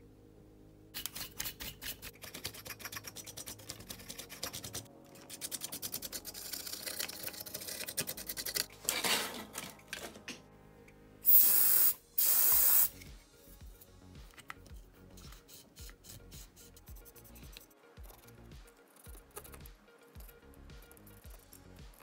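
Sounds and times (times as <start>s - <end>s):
toothbrush scrubbing metal jacks: 1.0s - 10.2s, 14.2s - 22.0s
aerosol spray hiss: 11.3s - 13.1s.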